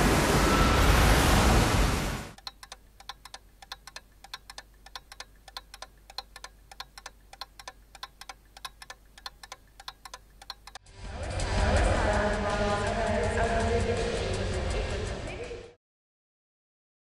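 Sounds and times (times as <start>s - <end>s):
faint sharp clicks: 2.4s - 10.8s.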